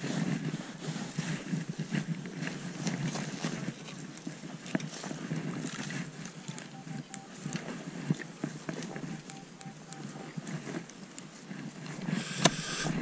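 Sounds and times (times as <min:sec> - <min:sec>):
metal detector signal: 0:06.3 - 0:10.8, 0:11.9 - 0:13.0.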